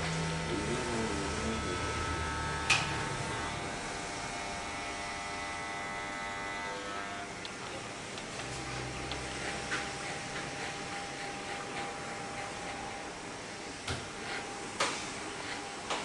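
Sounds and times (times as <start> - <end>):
electric hair clippers buzzing: 0.0 - 13.2.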